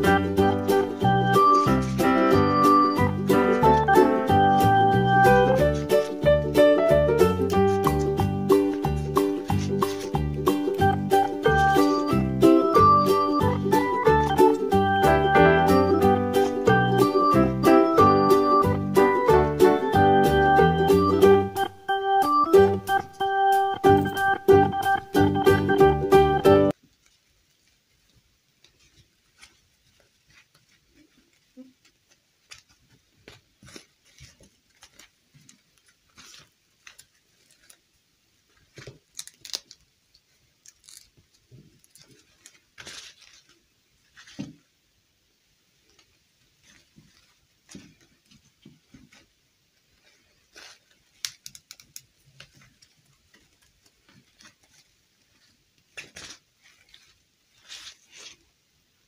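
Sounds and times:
satin dress rustling: 0.0s - 21.8s, 26.7s - 39.6s, 40.2s - 44.7s, 45.8s - 51.4s, 52.1s - 58.6s
plastic doll limbs clicking: 38.7s - 42.6s, 51.1s - 54.8s.

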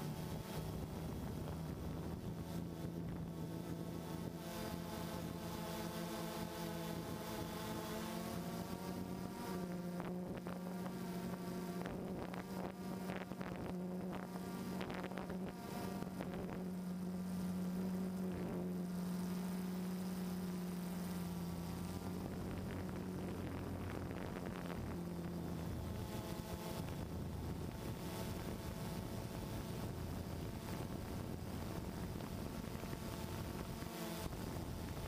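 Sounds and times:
quadcopter motors buzzing: 0.0s - 35.0s
wind on microphone: 21.9s - 35.0s.

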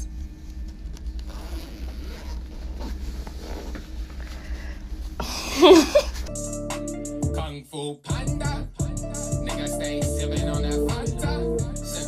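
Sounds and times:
low steady hum: 0.0s - 6.3s
clothing rustling: 0.5s - 6.3s
person crying out: 5.2s - 6.1s.

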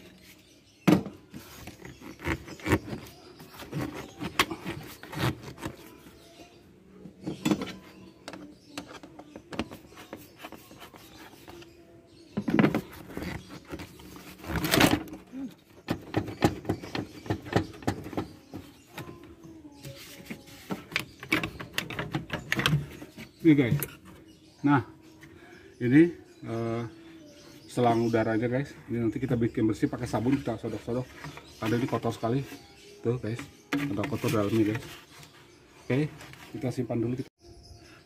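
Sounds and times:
rubber hose rubbing scrapes: 1.4s - 6.0s.

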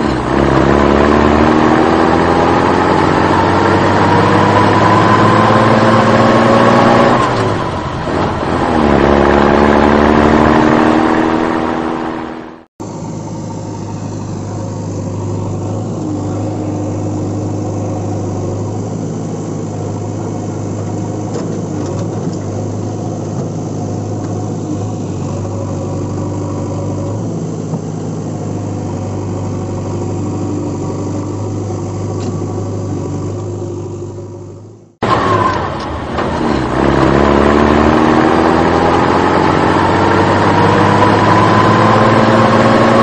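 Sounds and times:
engine idling: 12.8s - 36.4s.

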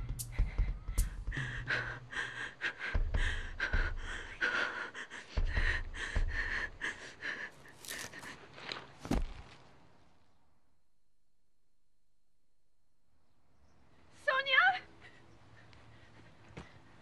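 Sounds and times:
person panting: 0.0s - 8.6s.

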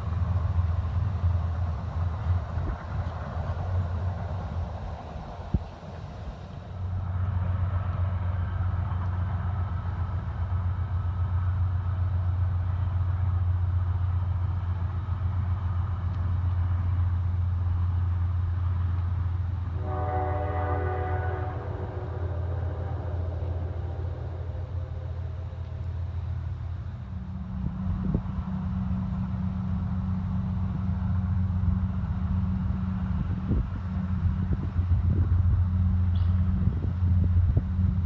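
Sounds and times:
distant train rumbling: 0.0s - 38.0s
train horn blast: 19.7s - 26.2s.

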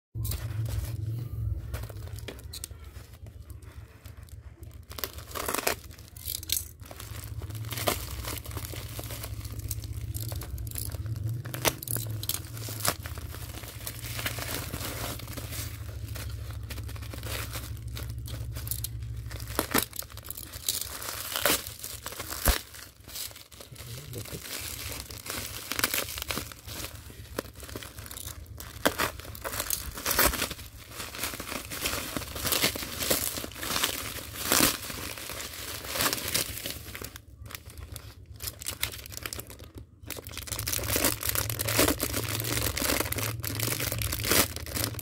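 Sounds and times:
bubble wrap rustling: 0.2s - 45.0s
plastic mailer crinkling and ripping: 0.2s - 45.0s.

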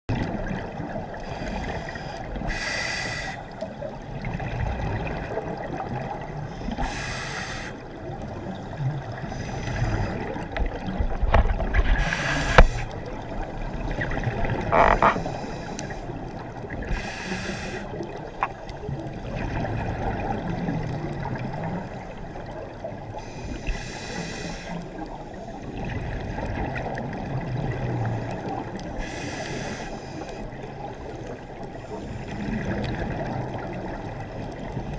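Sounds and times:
regulator bubbles hissing: 0.2s - 10.8s, 11.8s - 18.6s
low underwater rumble: 8.0s - 23.4s.

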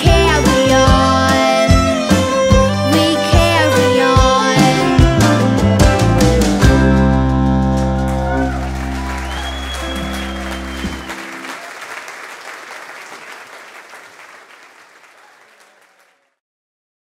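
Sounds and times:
bluegrass band final chord: 4.6s - 11.6s
audience applause: 7.8s - 16.4s.

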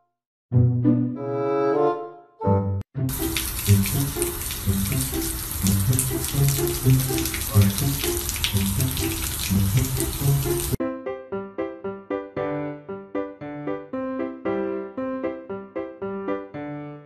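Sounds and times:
background music: 0.5s - 10.8s
garden hose water hissing: 3.1s - 10.8s
water splashing on concrete: 3.1s - 10.8s.

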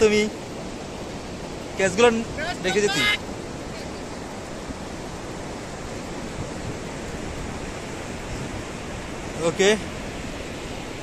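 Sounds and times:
surf: 0.0s - 11.0s
wind: 0.0s - 11.0s.

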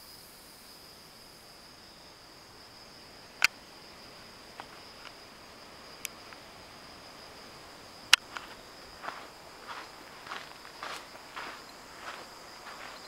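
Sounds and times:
insects calling: 0.0s - 13.0s.

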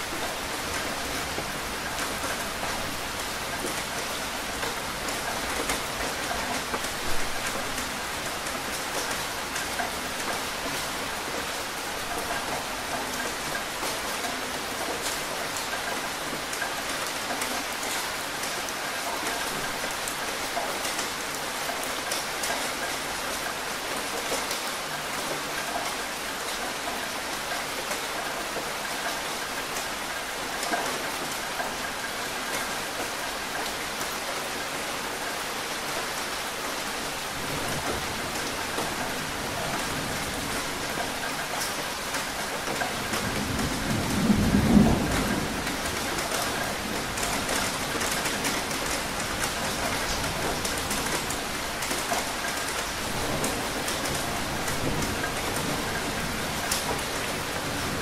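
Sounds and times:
steady rain falling: 0.0s - 58.0s
rumble of thunder: 43.1s - 49.8s.

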